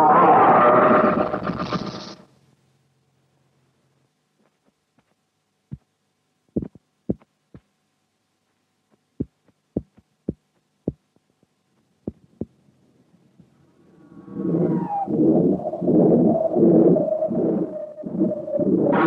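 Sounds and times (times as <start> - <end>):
faint steady hum: 0.0 - 19.0
dull low thumps: 6.6 - 7.7, 9.2 - 11.3, 12.0 - 12.6.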